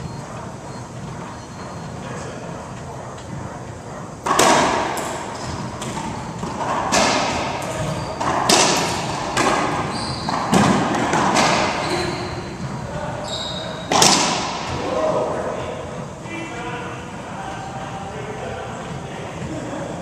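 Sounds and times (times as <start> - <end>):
sneakers squeaking on hardwood: 0.0 - 14.8
racquet striking ball: 4.2 - 12.9, 13.6 - 14.8
ball slamming off walls: 5.8 - 11.8.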